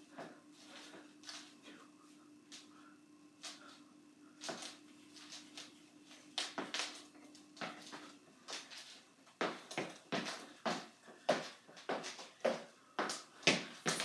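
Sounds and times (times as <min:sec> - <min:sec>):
faint steady hum: 0:00.0 - 0:14.0
sneakers on hardwood floor: 0:04.4 - 0:08.8, 0:09.4 - 0:14.0.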